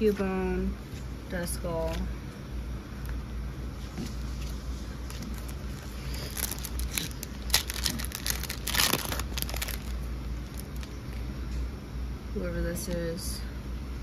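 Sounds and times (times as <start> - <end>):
foil wrapper crinkling: 5.0 - 11.0.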